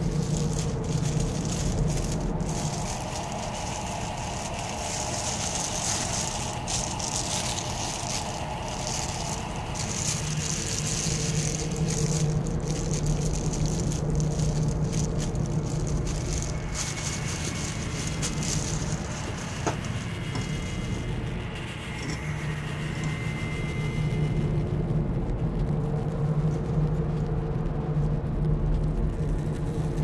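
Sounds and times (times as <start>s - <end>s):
plastic bag rustling: 0.0s - 22.2s
steady background hum: 0.0s - 30.0s.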